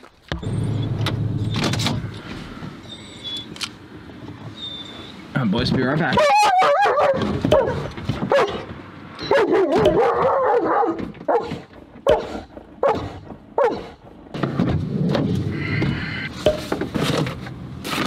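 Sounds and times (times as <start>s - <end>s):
dog crying: 6.2s - 8.6s
dog barking: 6.2s - 14.0s.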